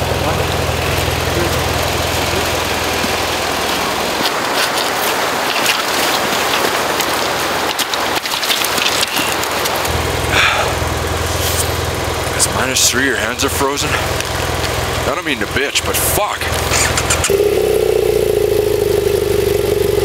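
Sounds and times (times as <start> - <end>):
motorcycle engine idling: 0.0 - 5.5, 6.5 - 20.0
stream rushing over rocks: 1.9 - 10.5.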